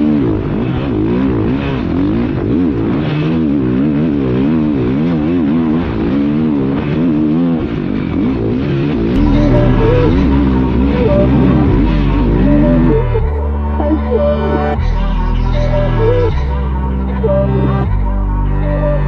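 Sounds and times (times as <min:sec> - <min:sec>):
dirt bike engine revving: 0:00.0 - 0:14.8
background music: 0:09.1 - 0:19.0.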